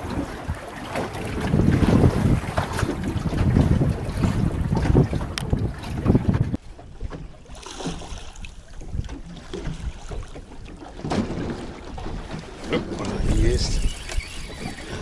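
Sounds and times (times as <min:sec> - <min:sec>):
wind buffeting microphone: 0:00.0 - 0:07.3.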